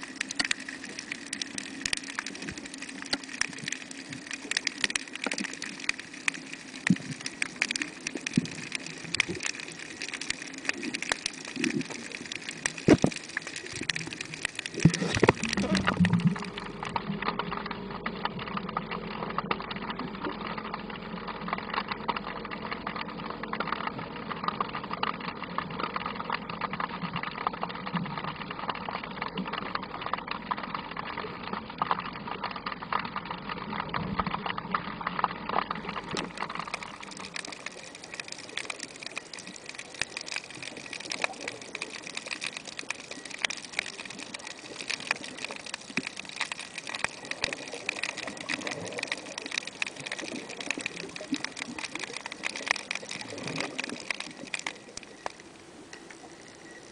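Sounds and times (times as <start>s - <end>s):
underwater crackling and ticking: 0.0s - 56.9s
steady low hum: 14.8s - 25.8s.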